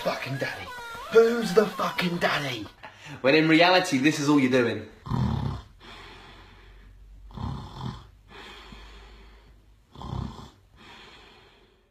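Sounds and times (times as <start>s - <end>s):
man snoring: 5.0s - 6.5s, 7.2s - 8.8s, 9.9s - 11.5s
breathy breaths: 5.6s - 7.3s, 8.0s - 11.9s.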